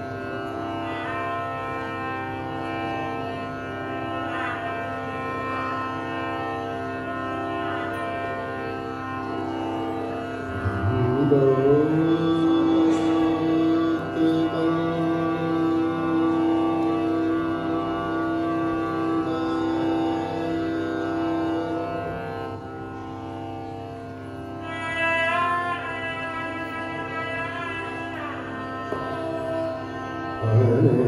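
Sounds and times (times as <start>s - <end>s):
drone of held instrument tones: 0.0s - 31.0s
man singing long held note: 10.4s - 22.4s, 24.6s - 31.0s.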